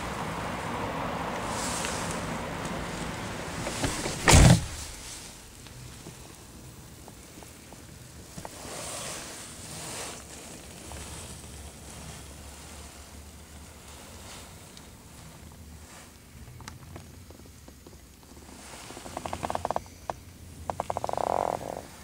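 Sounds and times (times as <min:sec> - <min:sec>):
car door thunk: 0:03.5 - 0:05.1.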